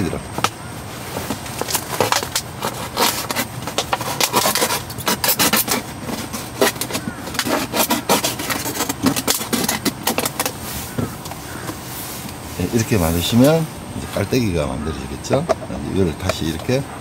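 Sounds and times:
plastic bottle crackling: 0.1s - 13.7s.

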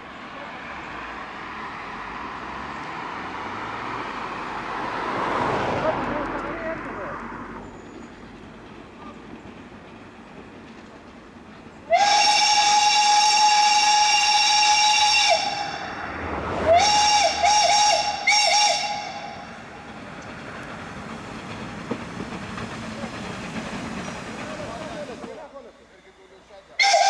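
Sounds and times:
train running: 0.0s - 27.0s
steam whistle blasts and toots: 11.9s - 16.0s, 16.6s - 19.5s, 26.8s - 27.0s.

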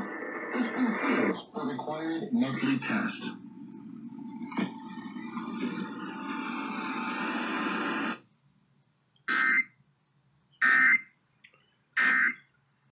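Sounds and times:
steady radio noise: 0.0s - 8.5s, 9.3s - 9.7s, 10.6s - 11.0s, 12.0s - 12.5s.

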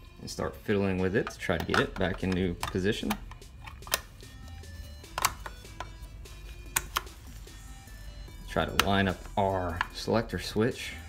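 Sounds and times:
soft background music: 0.0s - 11.0s.

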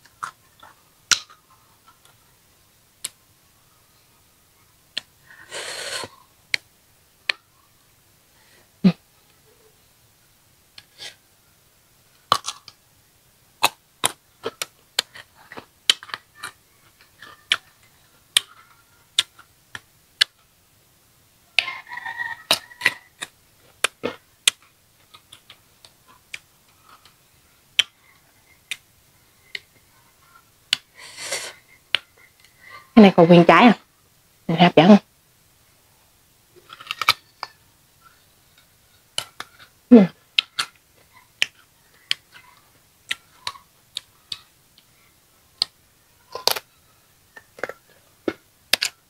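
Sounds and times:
crunching and chewing fruit: 12.1s - 12.8s, 13.6s - 20.4s, 21.7s - 27.2s, 45.6s - 46.7s, 47.3s - 49.0s.

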